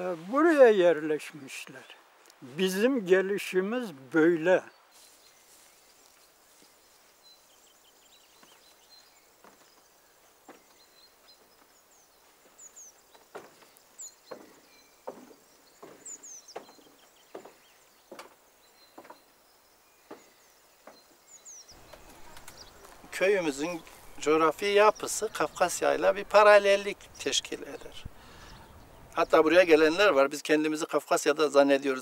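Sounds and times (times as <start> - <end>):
birds chirping faintly: 0.0 - 32.0
footsteps on wooden floorboards: 9.4 - 19.2.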